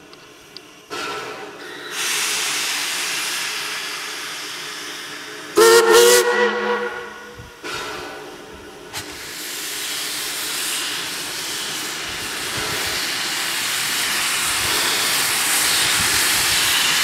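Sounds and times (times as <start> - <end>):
steam locomotive hissing: 0.0 - 17.0
steam whistle blast: 5.6 - 7.4.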